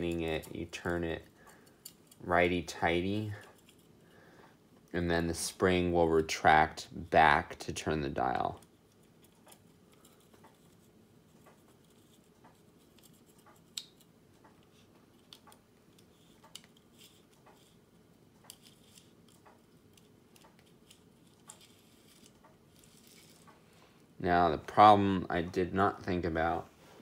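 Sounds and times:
small metal parts clicking: 0.0s - 2.3s, 8.4s - 14.1s, 18.4s - 23.6s.

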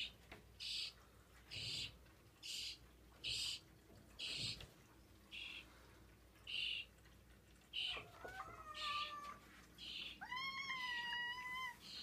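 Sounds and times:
cat meowing: 7.8s - 9.4s, 10.2s - 12.0s.

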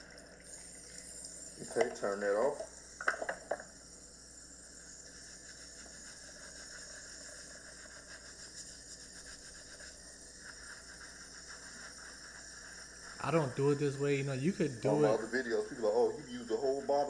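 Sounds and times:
soap lathering wet hair: 4.8s - 15.3s.

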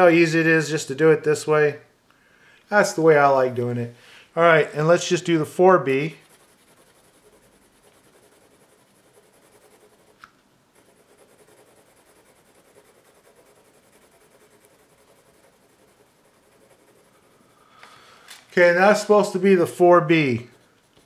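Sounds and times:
pencil scratching on paper: 5.0s - 17.5s, 19.1s - 21.0s.

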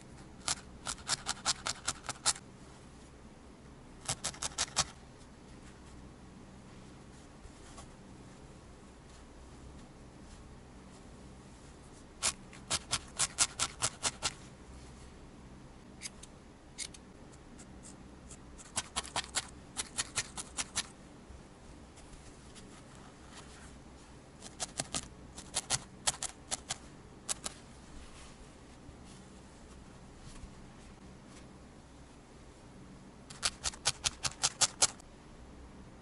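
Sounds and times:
felting needle clicks: 0.4s - 2.4s, 24.4s - 27.6s, 33.3s - 35.0s.

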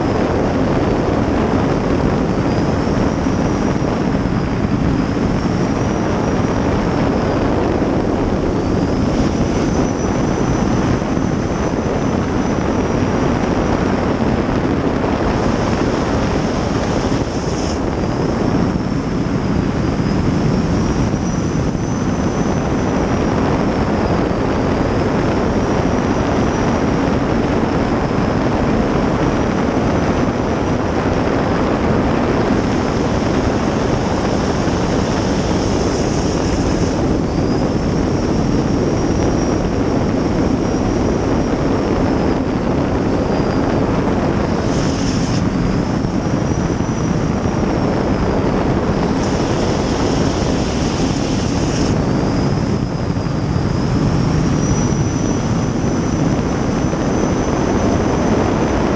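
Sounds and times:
gas turbine whine: 0.0s - 58.9s
rushing water and wind: 0.0s - 58.9s.

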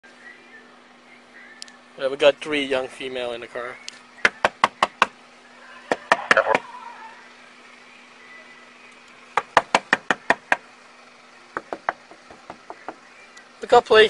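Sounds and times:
knocking on car window: 4.2s - 5.2s, 5.9s - 6.6s, 9.4s - 10.7s, 11.5s - 13.0s.

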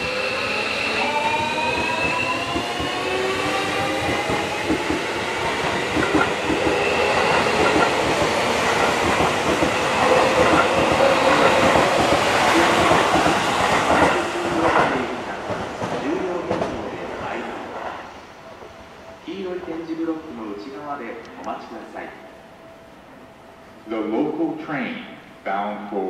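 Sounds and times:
train wheel clatter: 1.1s - 16.9s.

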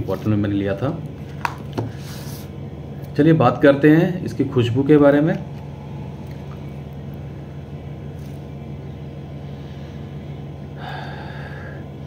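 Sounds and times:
low machine hum: 0.0s - 12.0s
person sniffing: 1.9s - 2.5s.

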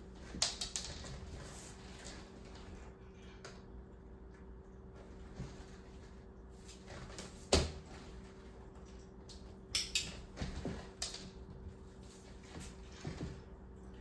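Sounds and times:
soft taps and shuffles on floor: 10.3s - 13.8s.

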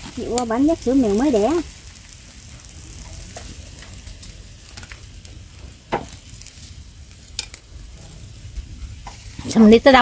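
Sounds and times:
faint crackle: 0.0s - 10.0s
meat sizzling on a grill: 0.0s - 10.0s.

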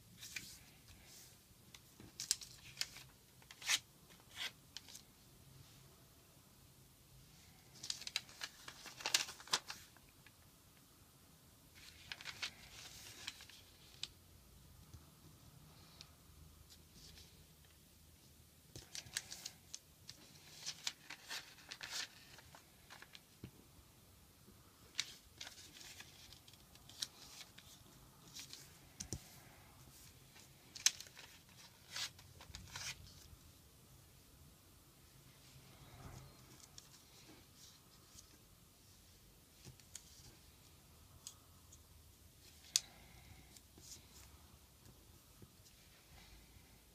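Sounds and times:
paper rustling and crinkling: 2.0s - 5.1s, 7.6s - 10.1s, 11.8s - 14.1s, 18.7s - 23.4s, 24.9s - 29.3s, 29.9s - 33.3s.

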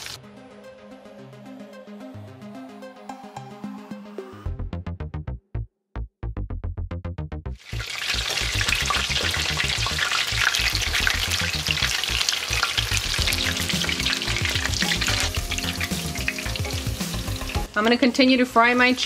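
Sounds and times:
music beat: 0.2s - 7.6s, 12.9s - 17.8s
chicken deep-frying in oil: 7.6s - 19.0s.

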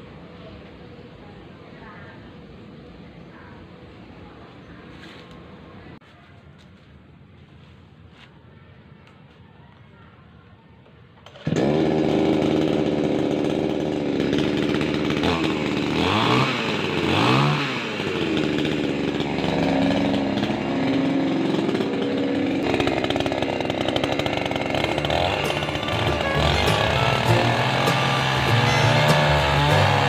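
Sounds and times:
chainsaw engine idling: 11.2s - 30.0s.

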